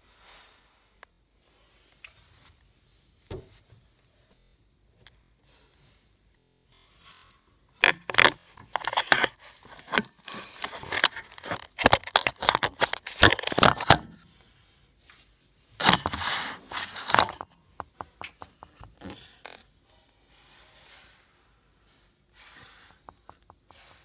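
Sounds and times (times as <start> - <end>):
phone handling scraping and rustling: 7.8 - 14.4, 15.8 - 19.6.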